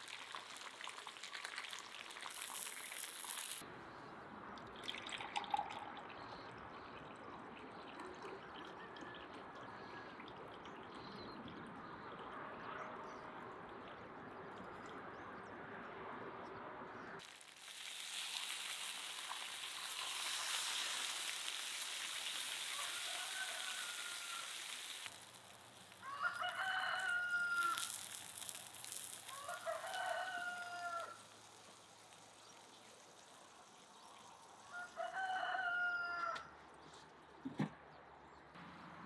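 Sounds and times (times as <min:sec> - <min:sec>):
water sizzling in hot pan: 0:00.0 - 0:03.6, 0:17.2 - 0:35.0
rooster crowing: 0:22.6 - 0:24.8, 0:26.0 - 0:28.1, 0:29.2 - 0:31.2, 0:34.7 - 0:36.5.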